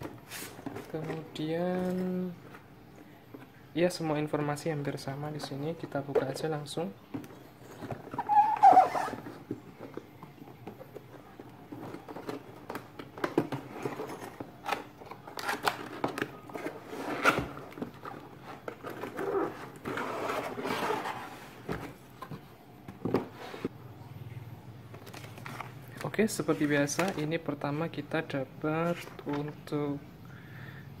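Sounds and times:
cardboard flaps rubbing: 0:08.0 - 0:09.3
cardboard box scraping on desk: 0:19.0 - 0:21.9.

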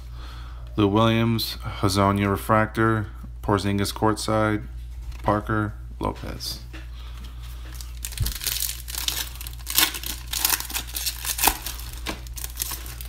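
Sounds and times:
foil wrapper crinkling: 0:07.6 - 0:13.0.

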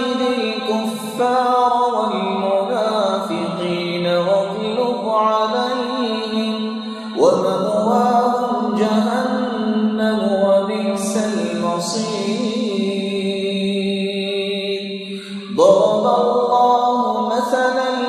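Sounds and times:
man reciting melodically: 0:00.0 - 0:18.0.

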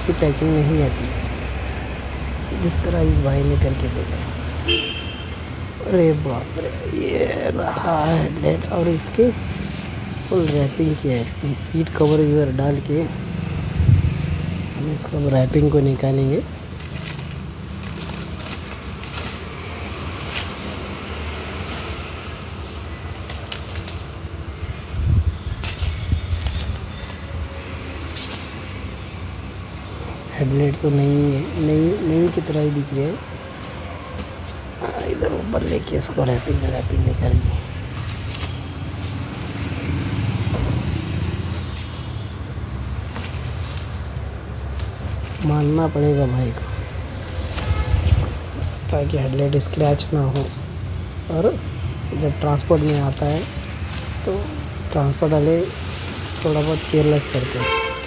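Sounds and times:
engine humming: 0:00.0 - 0:58.0
plastic wrap crinkling: 0:14.6 - 0:30.8, 0:37.6 - 0:48.9, 0:52.6 - 0:58.0.

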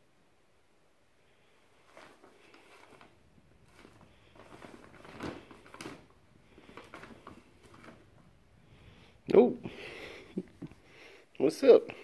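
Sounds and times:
paper bag crinkling and rustling: 0:01.7 - 0:08.4.

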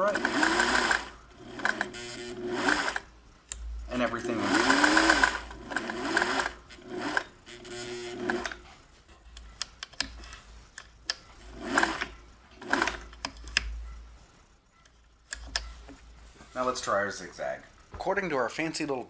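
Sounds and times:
sewing machine stitching: 0:00.0 - 0:03.1, 0:04.2 - 0:08.6, 0:11.4 - 0:13.1.

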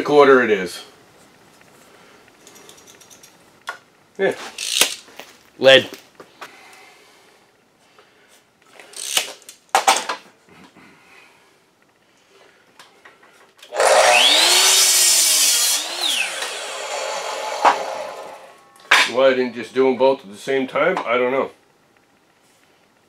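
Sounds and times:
saw blade winding down: 0:13.6 - 0:18.7
miter saw motor whine: 0:13.7 - 0:18.6.

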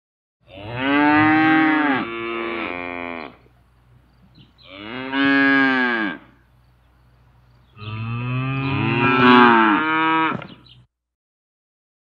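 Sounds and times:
cow mooing: 0:00.4 - 0:03.5, 0:04.6 - 0:06.4, 0:07.8 - 0:10.6.

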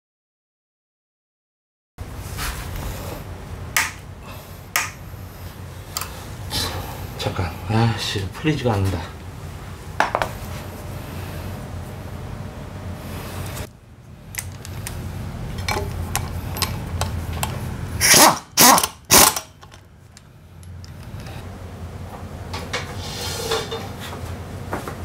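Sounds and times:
workshop clatter: 0:10.0 - 0:10.6, 0:14.4 - 0:19.9, 0:22.1 - 0:25.0
tool clinks: 0:15.6 - 0:19.8
impact wrench bursts: 0:18.0 - 0:19.7.

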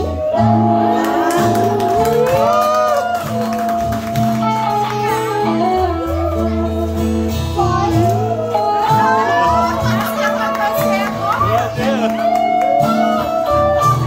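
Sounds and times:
girl singing into microphone: 0:00.0 - 0:11.2
strummed acoustic guitar: 0:00.0 - 0:14.0.

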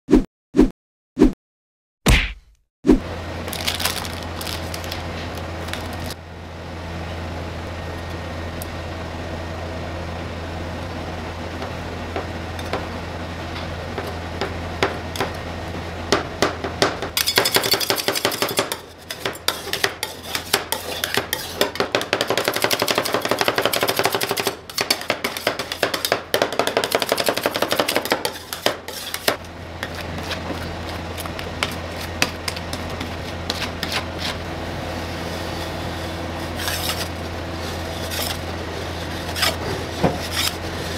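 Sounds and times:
plastic wrapper crinkling: 0:03.5 - 0:06.2
metal spatulas clattering on plate: 0:17.2 - 0:29.3
spatula scraping cold plate: 0:17.2 - 0:40.9.

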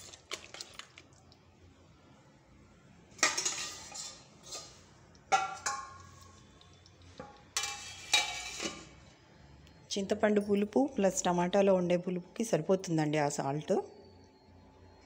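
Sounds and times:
metal spoon clanking on pot: 0:03.2 - 0:04.6, 0:05.3 - 0:06.1.

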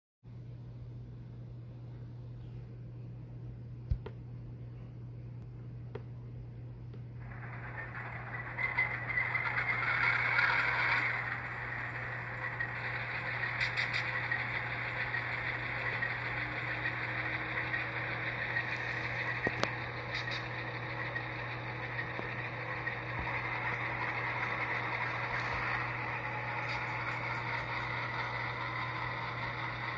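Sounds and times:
diesel locomotive sound through small speaker: 0:06.8 - 0:29.9.

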